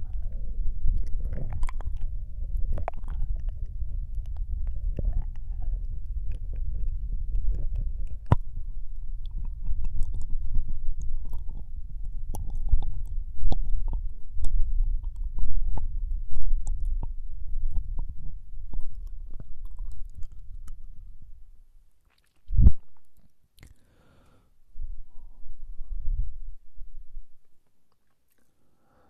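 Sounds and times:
steady low rumble: 0.0s - 23.2s, 24.6s - 27.7s
wet mouth clicks and smacks: 0.9s - 5.5s, 9.2s - 18.1s, 18.7s - 20.8s, 22.0s - 23.8s, 27.9s - 28.6s.

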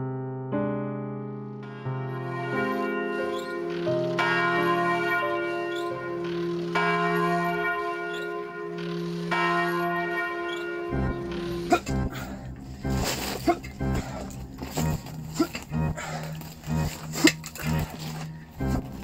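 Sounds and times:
bell striking: 1.6s - 13.1s.

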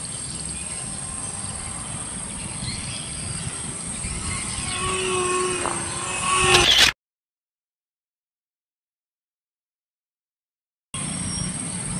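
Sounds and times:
thin high whine: 0.0s - 7.0s
model plane motor buzzing: 0.3s - 7.0s.

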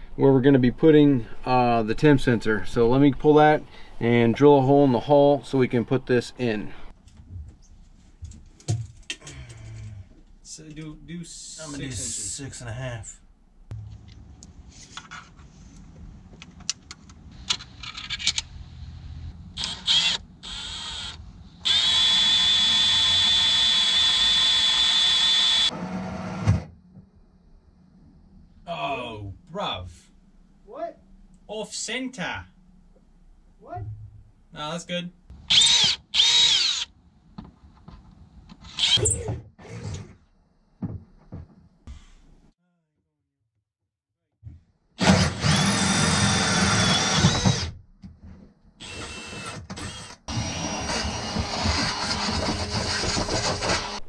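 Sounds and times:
power drill whining: 19.6s - 25.7s, 35.5s - 36.9s, 38.7s - 40.1s, 45.0s - 47.7s, 48.8s - 54.0s.

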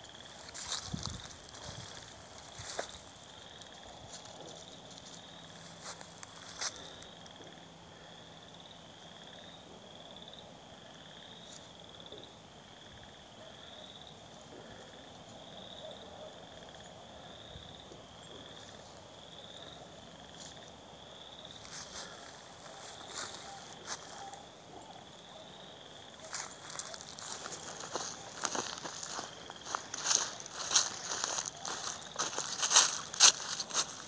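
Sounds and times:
footsteps in dry grass: 0.0s - 7.4s, 21.4s - 24.5s, 25.6s - 34.0s
frogs trilling chorus: 0.0s - 34.0s.

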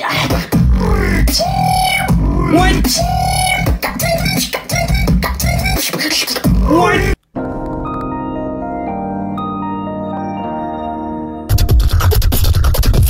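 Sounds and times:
beatboxing: 0.0s - 7.1s, 11.5s - 13.0s.

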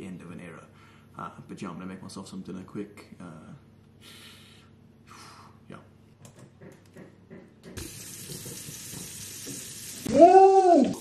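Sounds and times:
burger patty sizzling in pan: 7.8s - 10.1s.

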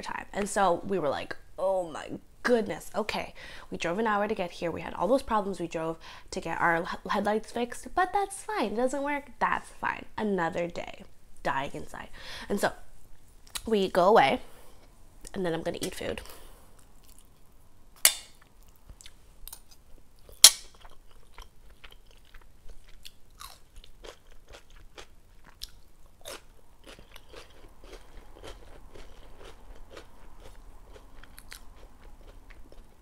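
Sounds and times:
chewing and crunching: 16.7s - 17.5s, 18.4s - 33.0s.

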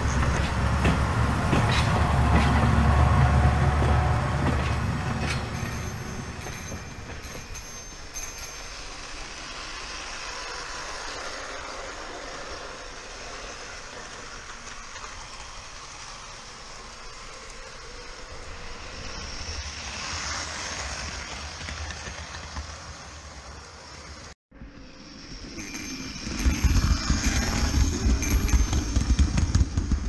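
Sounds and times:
model train motor whirring: 5.3s - 23.2s, 25.0s - 30.0s.

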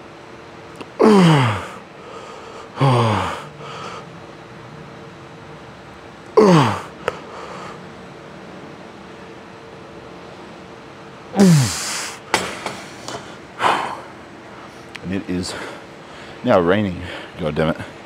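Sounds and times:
man groaning with effort: 0.9s - 1.8s, 2.7s - 4.0s, 6.4s - 7.0s, 11.4s - 12.2s.

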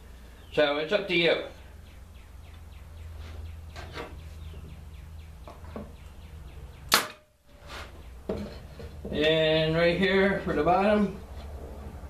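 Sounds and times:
nail gun firing: 6.9s - 7.2s
wood and tool knocks: 8.2s - 9.2s.

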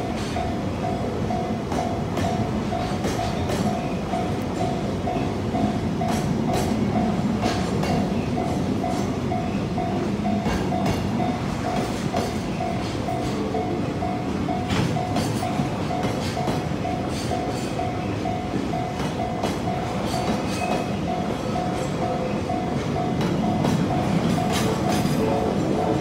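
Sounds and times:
train wheels clacking on rails: 0.0s - 26.0s
level crossing alarm dinging: 8.4s - 26.0s.

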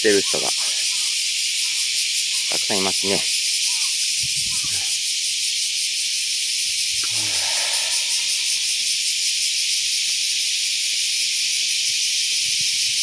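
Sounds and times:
cicadas chorus: 0.0s - 13.0s.

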